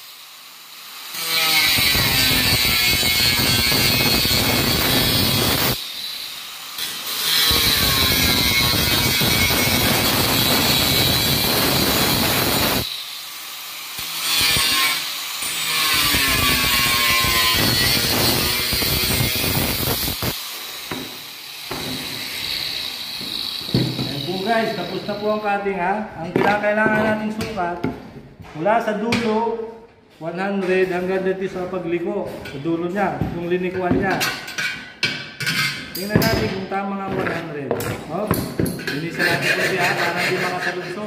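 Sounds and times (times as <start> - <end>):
angle grinder cutting steel: 0.0 - 25.7, 38.8 - 41.0.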